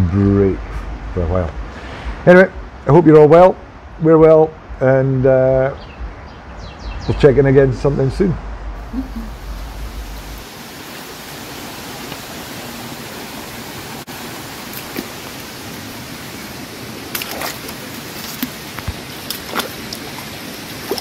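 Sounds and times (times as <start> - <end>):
stream water rushing: 8.8 - 21.0.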